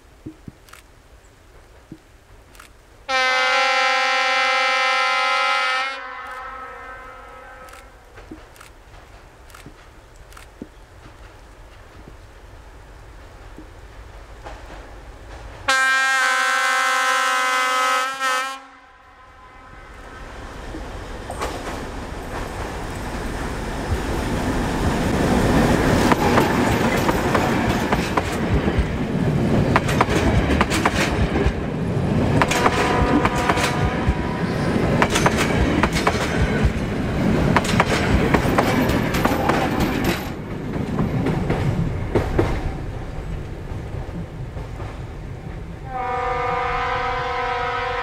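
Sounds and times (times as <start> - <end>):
diesel locomotive horn: 3.1 - 8.1, 15.7 - 20.4, 32.5 - 34.7, 45.8 - 48.0
wheels clicking over rail joints: 7.7 - 15.7, 20.0 - 45.8
train engine running: 20.0 - 46.0.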